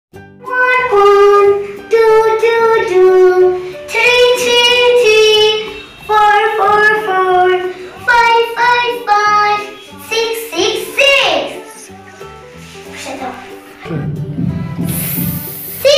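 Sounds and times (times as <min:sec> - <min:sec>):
soft backing music: 0:00.2 - 0:15.9
child singing: 0:00.5 - 0:12.2, 0:12.9 - 0:14.1, 0:14.8 - 0:15.9.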